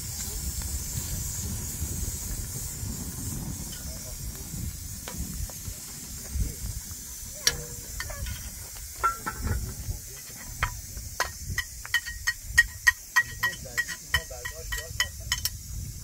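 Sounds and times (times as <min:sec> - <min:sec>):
tableware clinking: 0:07.5 - 0:09.7.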